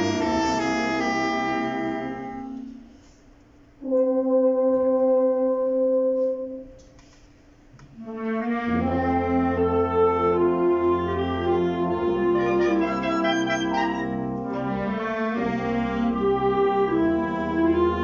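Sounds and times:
concert band playing: 0.0s - 2.8s, 8.9s - 18.0s.

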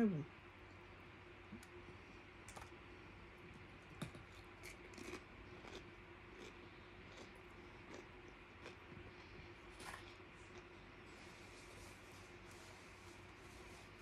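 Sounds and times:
faint steady hum: 0.0s - 14.0s
person chewing crunchy food: 3.9s - 11.8s.

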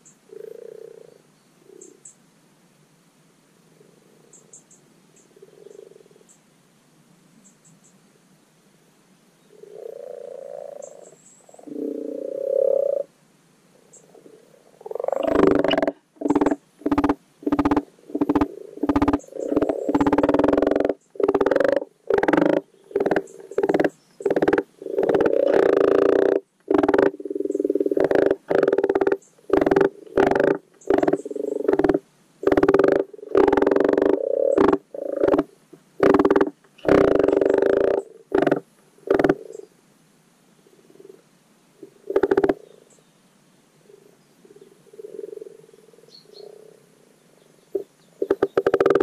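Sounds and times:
frogs croaking: 0.0s - 2.1s, 3.8s - 6.3s, 9.5s - 13.1s, 13.7s - 39.7s, 41.8s - 43.0s, 43.8s - 49.0s
frog croaking in short bursts: 9.6s - 13.1s, 13.9s - 39.7s, 41.8s - 42.6s, 47.7s - 49.0s.

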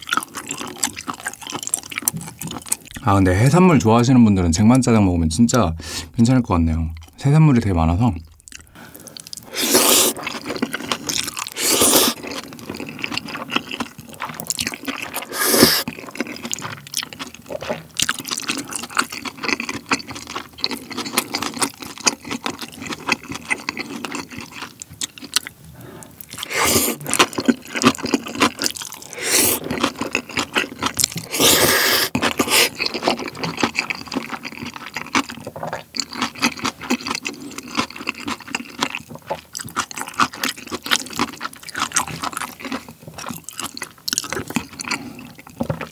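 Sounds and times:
wet chewing: 0.0s - 3.0s, 8.2s - 45.9s
loud noodle slurps: 9.4s - 12.3s, 15.1s - 15.9s, 26.4s - 27.3s, 29.0s - 29.9s, 31.2s - 33.1s.

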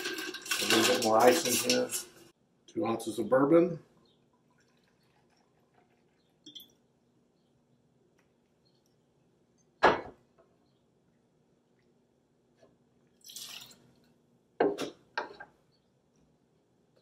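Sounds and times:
jigger and tin knocking on counter: 0.0s - 2.1s.

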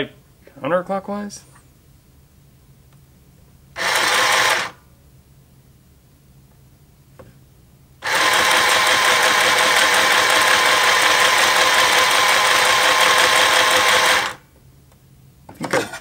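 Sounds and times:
sewing machine motor whine: 3.8s - 4.8s, 8.0s - 14.4s.

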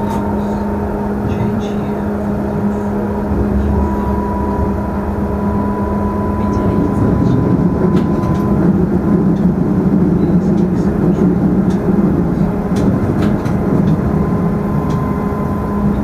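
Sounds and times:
train wheels rumbling on rail: 0.0s - 16.0s
traction motor hum and tone: 2.6s - 9.2s.

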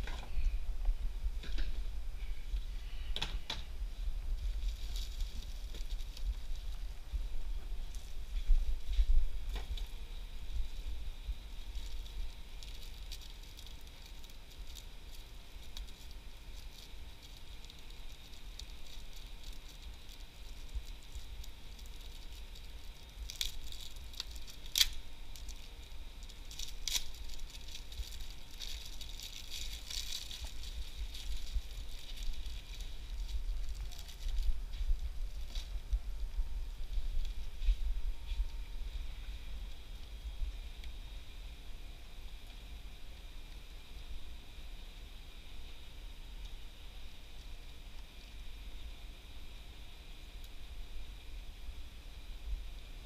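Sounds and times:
snack packages rustling: 11.6s - 35.7s.

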